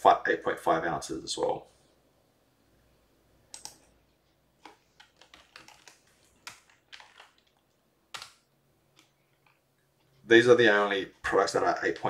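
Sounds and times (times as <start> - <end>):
typing on computer keyboard: 3.5 - 3.9, 4.6 - 8.4.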